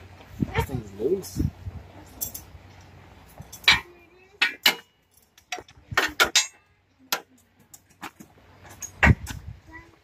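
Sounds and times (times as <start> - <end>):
metal tools clanking on engine: 2.0 - 9.3.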